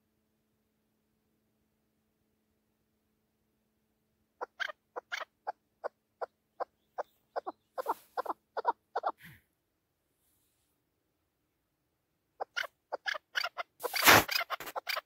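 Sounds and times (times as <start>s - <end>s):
partridge calling: 4.4s - 9.3s, 12.4s - 15.0s.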